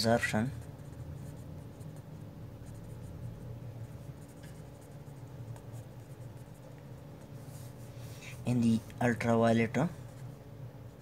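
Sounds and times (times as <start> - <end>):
steady low hum: 0.0 - 11.0
marker pen writing on paper: 0.6 - 8.5.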